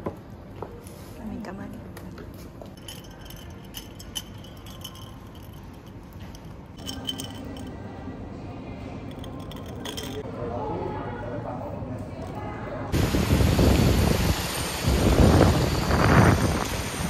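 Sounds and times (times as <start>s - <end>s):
ice cubes clinking against glass: 2.8s - 7.8s, 9.1s - 10.2s.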